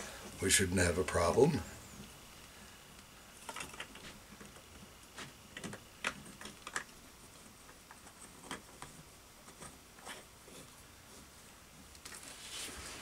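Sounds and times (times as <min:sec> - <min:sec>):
wooden dowel clicking in plastic: 0:05.6 - 0:07.0.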